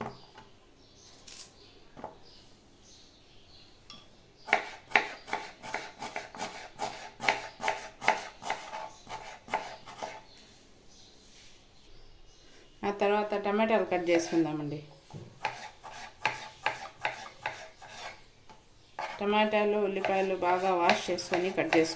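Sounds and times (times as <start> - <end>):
knife chopping on plastic board: 4.5 - 10.2, 15.1 - 18.1, 20.0 - 21.9.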